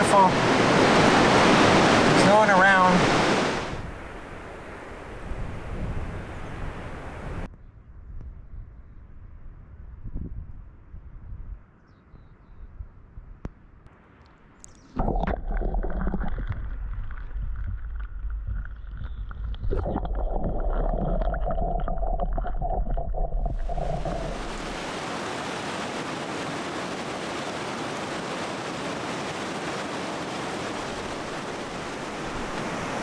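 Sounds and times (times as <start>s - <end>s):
fast-flowing creek water rushing: 0.0s - 3.8s, 23.5s - 33.0s
muffled underwater sloshing: 15.0s - 24.9s.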